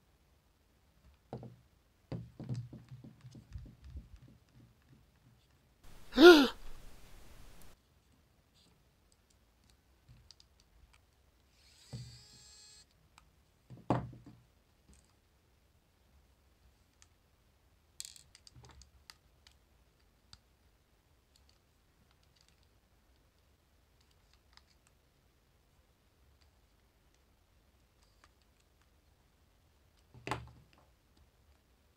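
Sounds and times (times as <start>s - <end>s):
electric screwdriver motor whine: 11.5s - 12.8s.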